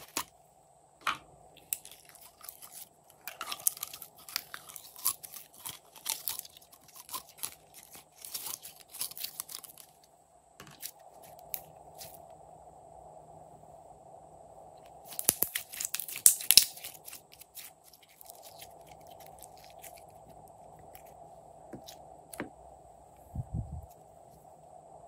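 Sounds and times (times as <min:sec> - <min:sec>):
slime crackling and popping: 0:01.6 - 0:10.0, 0:15.1 - 0:20.3.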